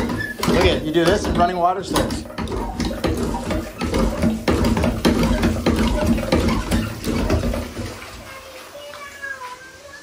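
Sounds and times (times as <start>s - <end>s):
hand pump clanking: 0.0s - 7.9s
water splashing into tub: 0.0s - 10.0s.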